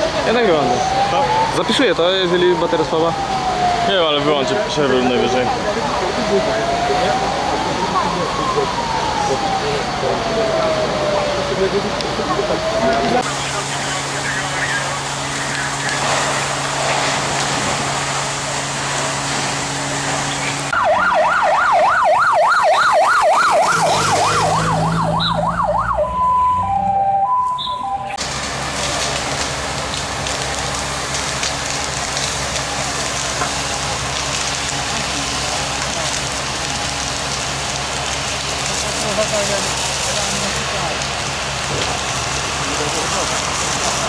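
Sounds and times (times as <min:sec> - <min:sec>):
rushing fire and water jets: 0:00.0 - 0:26.8, 0:27.5 - 0:44.0
fire engine siren: 0:00.0 - 0:44.0.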